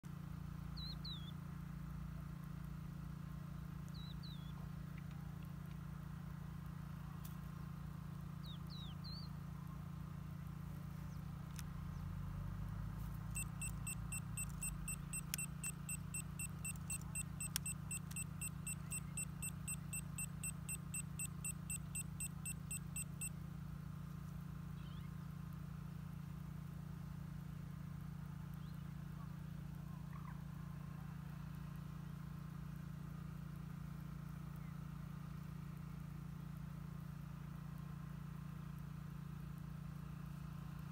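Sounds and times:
steady low hum: 0.1 - 34.8
short bird chirps: 0.8 - 1.3
rapid even beeping: 13.3 - 23.3.

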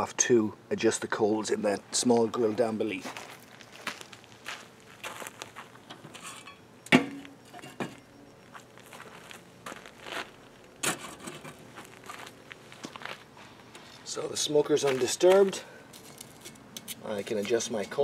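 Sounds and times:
footsteps on gravel: 2.1 - 6.3, 8.4 - 18.0
metal clanks and knocks: 5.9 - 8.0.

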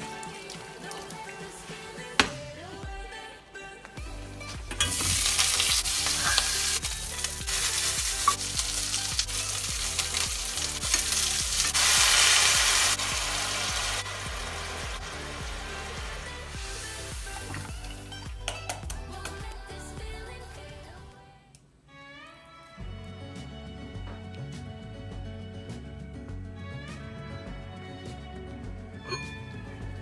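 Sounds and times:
meat sizzling in a frying pan: 0.0 - 1.6, 4.8 - 18.1.

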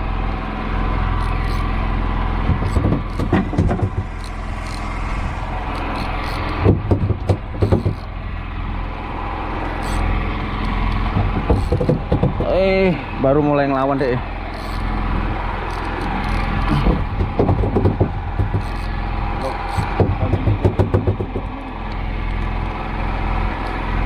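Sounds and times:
boat motor humming: 0.0 - 24.0
fishing rod and reel rattling: 1.1 - 1.9, 2.5 - 6.6, 9.4 - 12.0, 13.5 - 17.0, 18.2 - 20.0.

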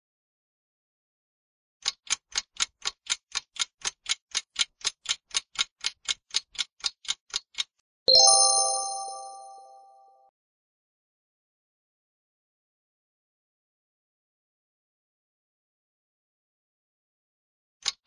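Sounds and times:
clock ticking: 1.8 - 8.9
bright bell-like chime: 8.1 - 10.2.

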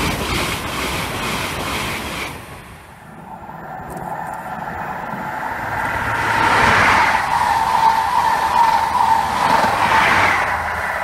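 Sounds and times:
train passing at speed: 0.0 - 11.0
steady high tone: 3.0 - 11.0.

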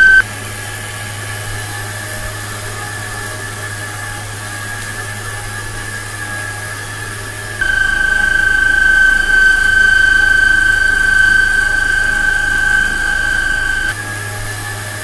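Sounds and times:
spindle low hum: 0.0 - 0.2, 7.6 - 14.0.

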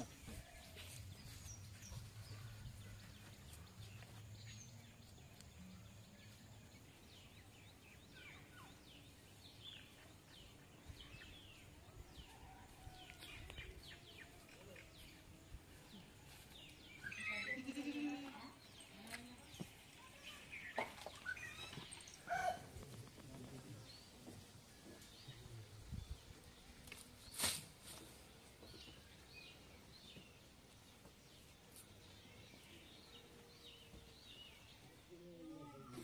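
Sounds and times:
bird chirps: 16.9 - 22.8.

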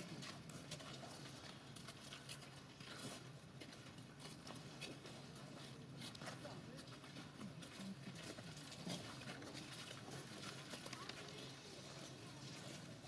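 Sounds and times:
soft ticks and crunches: 0.0 - 13.0.

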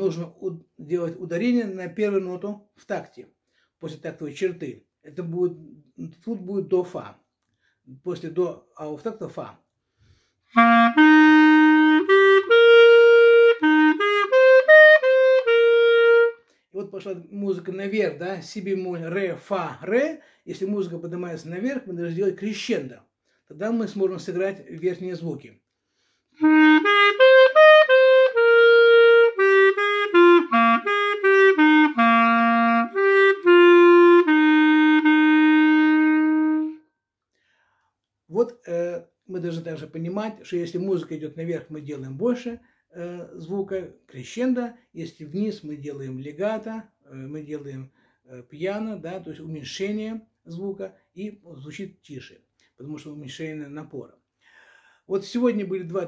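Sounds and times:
solo clarinet melody: 10.5 - 16.5, 26.4 - 37.0.

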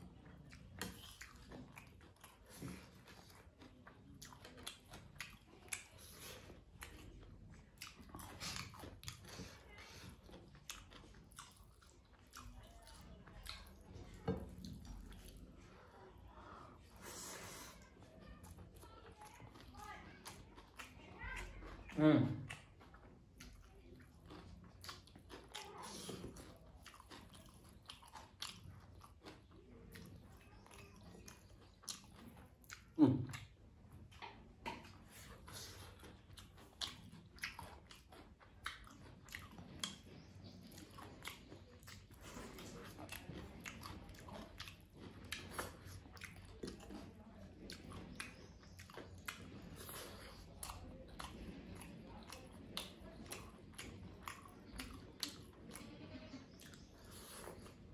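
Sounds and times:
chewing and lip-smacking: 0.0 - 57.9
wet mouth clicks: 36.2 - 42.5.

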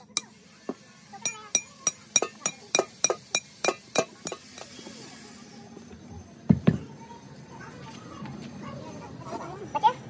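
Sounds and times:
steel rod clinking in metal cylinder: 1.2 - 4.7.

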